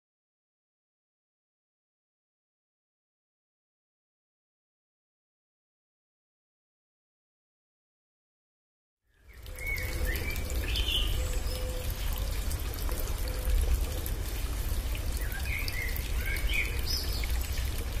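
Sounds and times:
birds chirping: 9.2s - 18.0s
water rushing with deep rumble: 9.3s - 18.0s.

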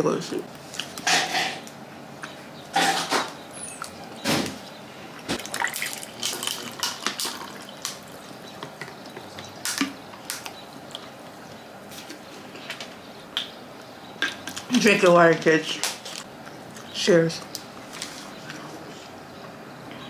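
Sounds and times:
water pouring into cup: 5.4s - 8.4s.

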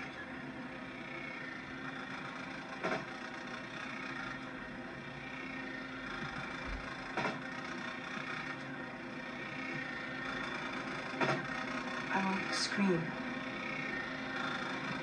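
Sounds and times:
machine hum: 0.0s - 15.0s
mechanical whir: 0.0s - 15.0s
sharp knocks: 7.2s - 7.4s, 11.2s - 11.5s.

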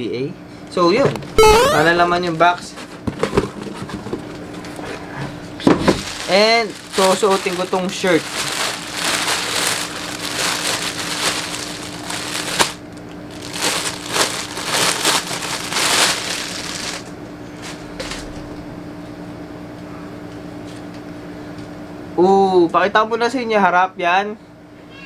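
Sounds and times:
sharp plastic crack: 5.7s - 12.8s
plastic bag crinkling: 5.8s - 17.1s.

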